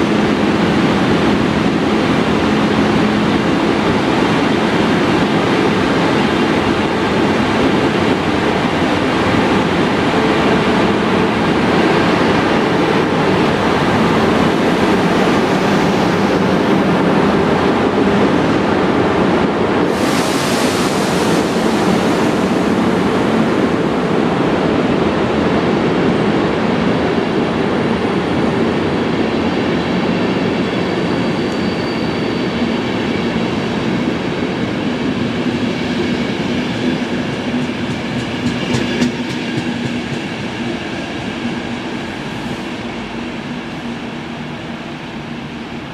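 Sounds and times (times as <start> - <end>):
train wheels rumbling: 0.0 - 45.9.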